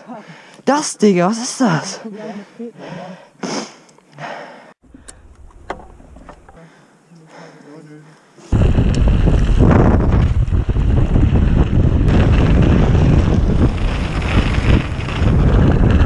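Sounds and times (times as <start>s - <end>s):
wind on microphone: 8.5s - 16.0s
tyres rumbling on ground: 8.6s - 16.0s.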